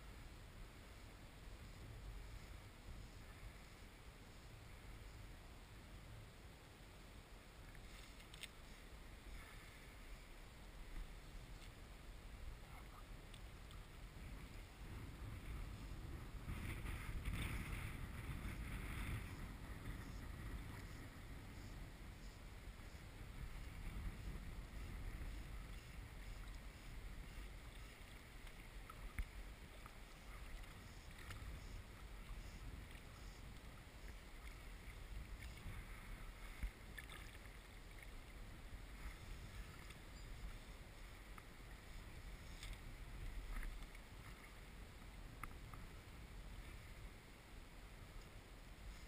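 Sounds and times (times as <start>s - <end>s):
steady low rumble: 0.0s - 49.0s
water lapping and sloshing: 12.7s - 47.1s.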